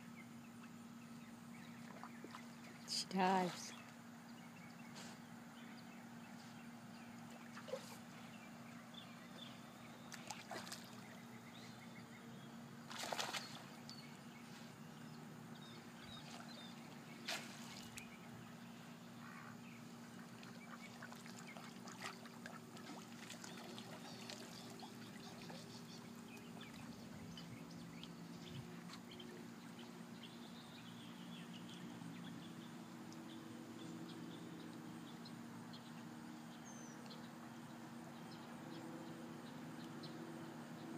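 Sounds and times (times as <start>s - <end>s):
steady low hum: 0.0s - 40.9s
water sloshing: 10.0s - 11.2s, 12.9s - 13.9s, 20.1s - 27.3s.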